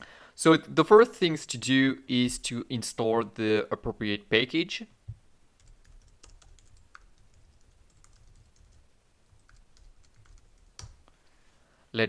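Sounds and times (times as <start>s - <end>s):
keyboard typing: 5.6s - 11.0s.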